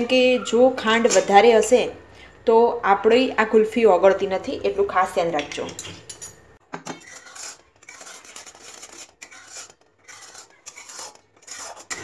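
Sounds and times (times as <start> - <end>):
spatula scraping iron pan: 6.9 - 12.0.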